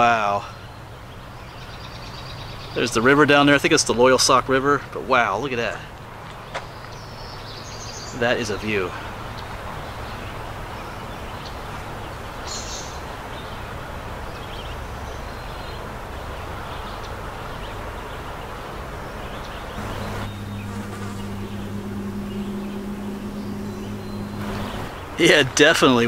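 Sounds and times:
flying insect buzzing: 0:19.8 - 0:24.9.

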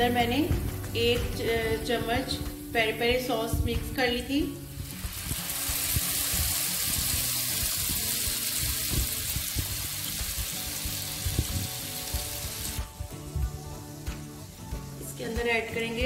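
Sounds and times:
sauce sizzling in hot oil: 0:04.3 - 0:16.0.

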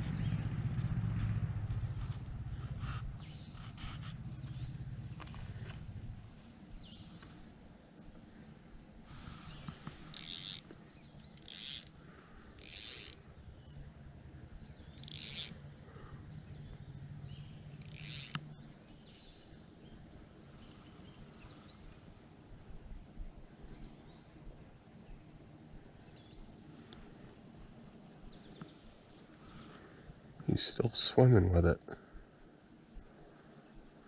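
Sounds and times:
fishing reel drag buzzing: 0:09.4 - 0:13.2, 0:14.8 - 0:15.6, 0:17.7 - 0:18.5.

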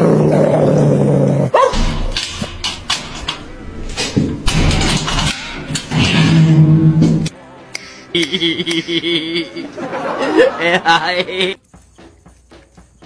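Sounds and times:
metal gate latch clicking: 0:01.7 - 0:07.3.

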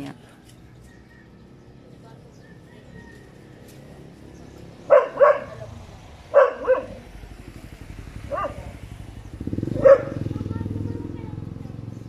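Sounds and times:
vehicle engine rumble: 0:00.0 - 0:12.0
dog barking: 0:04.9 - 0:07.1, 0:08.2 - 0:08.8, 0:09.6 - 0:10.3.

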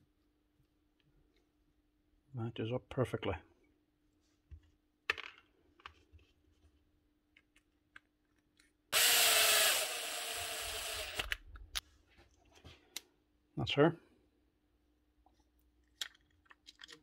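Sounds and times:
cordless drill whining: 0:09.0 - 0:11.4.

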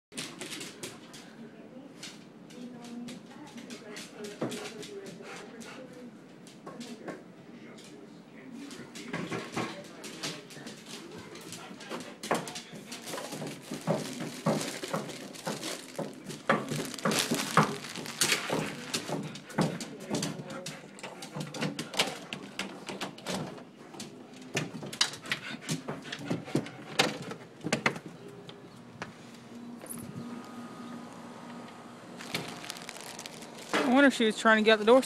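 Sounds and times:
dog moving restlessly: 0:12.4 - 0:19.5.

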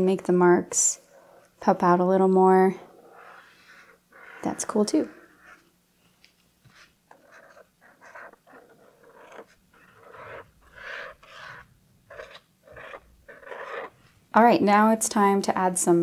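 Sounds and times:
pen scratching on paper: 0:01.1 - 0:01.5, 0:02.8 - 0:05.7, 0:06.6 - 0:14.0.

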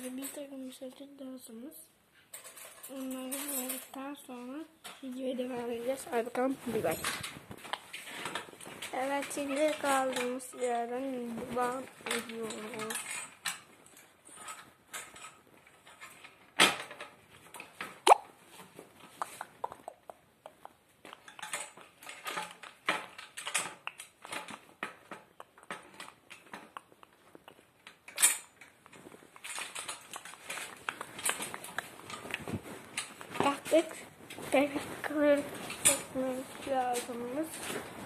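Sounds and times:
metal objects clinking and knocking: 0:02.3 - 0:04.0, 0:11.5 - 0:17.7, 0:21.2 - 0:26.8, 0:29.4 - 0:32.3.

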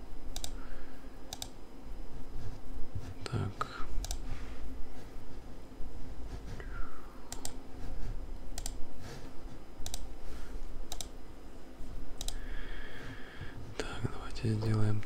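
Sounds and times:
steady low hum: 0:00.0 - 0:15.0
computer keystroke clicks: 0:00.3 - 0:00.6, 0:01.3 - 0:01.6, 0:04.0 - 0:04.2, 0:07.3 - 0:07.6, 0:08.6 - 0:08.8, 0:09.8 - 0:10.1, 0:10.9 - 0:11.2, 0:12.2 - 0:12.4.

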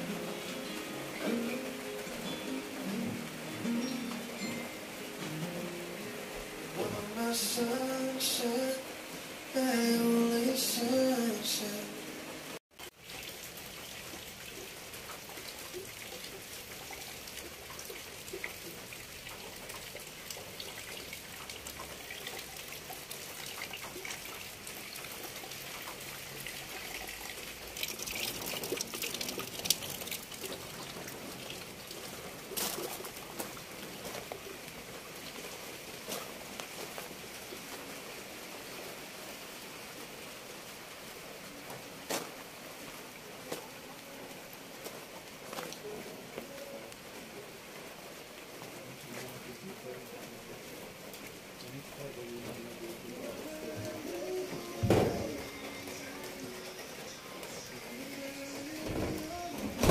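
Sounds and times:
light rain hiss: 0:00.0 - 0:59.9
water drip ticks: 0:12.8 - 0:38.2.

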